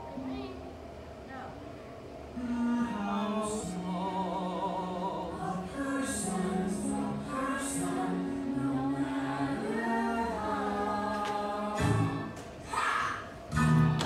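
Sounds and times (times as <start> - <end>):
group of voices singing: 2.4 - 12.4
musical accompaniment: 13.5 - 14.0.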